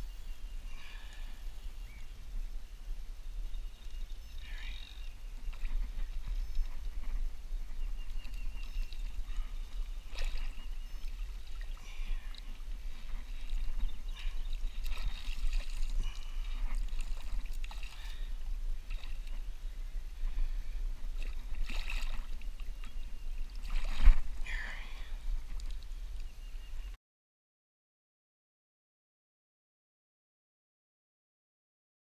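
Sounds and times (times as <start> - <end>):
water splashing and swishing: 3.8 - 26.2.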